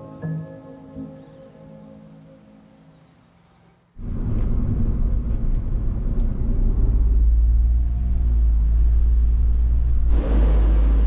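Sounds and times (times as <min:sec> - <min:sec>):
road and engine rumble: 0:02.6 - 0:11.0.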